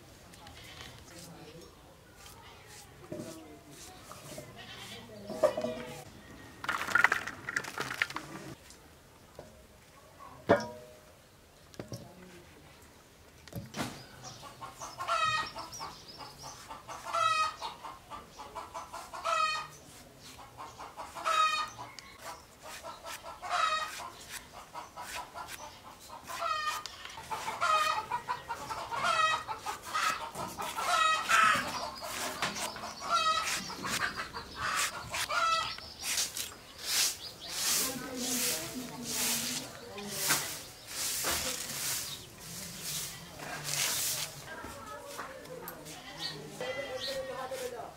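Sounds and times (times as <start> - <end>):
chicken clucking: 14.2 - 36.0.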